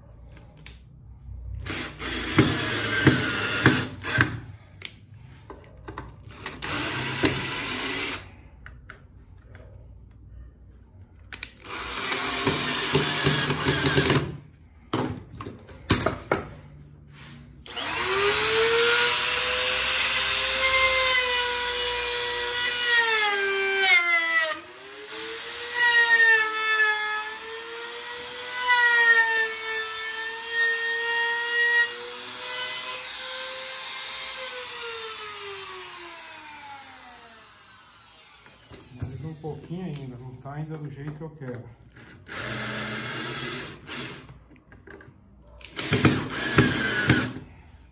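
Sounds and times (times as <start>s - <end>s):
cordless drill into wood: 1.7s - 4.4s, 6.3s - 8.3s, 11.6s - 14.3s, 17.6s - 39.6s, 42.3s - 44.3s, 45.7s - 47.5s
trim router whining: 17.6s - 39.8s, 45.7s - 47.4s.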